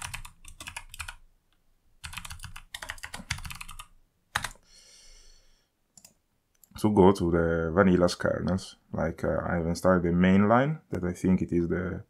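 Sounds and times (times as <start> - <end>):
keyboard typing: 0.0 - 1.2, 2.0 - 4.6.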